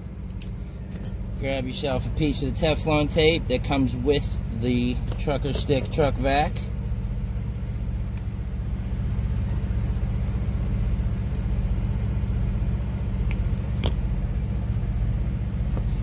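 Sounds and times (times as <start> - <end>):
truck engine idling: 0.0 - 16.0.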